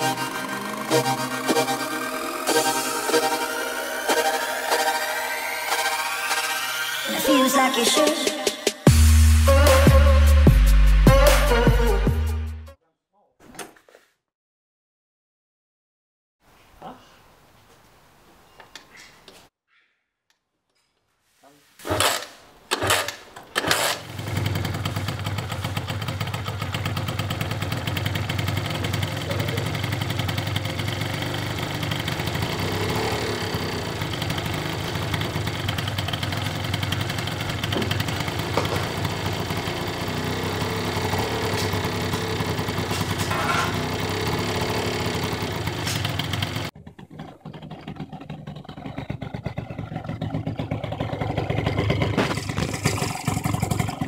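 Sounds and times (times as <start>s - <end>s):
two-stroke scooter engine: 0.0s - 7.0s, 21.9s - 54.0s.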